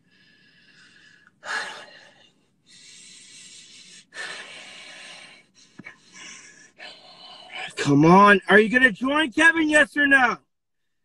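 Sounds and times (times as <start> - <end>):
person breathing heavily: 0.0 - 7.8.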